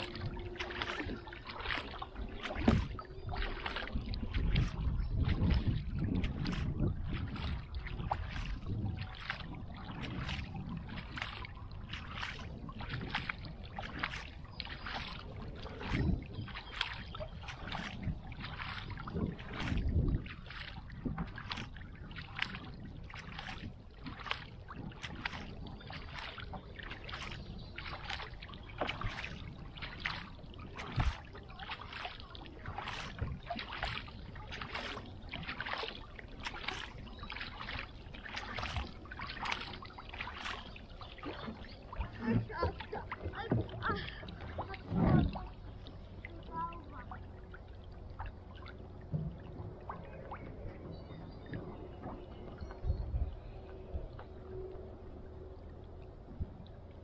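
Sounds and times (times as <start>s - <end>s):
low rumble: 0.0s - 40.6s
paddle splashing into water: 0.0s - 52.7s.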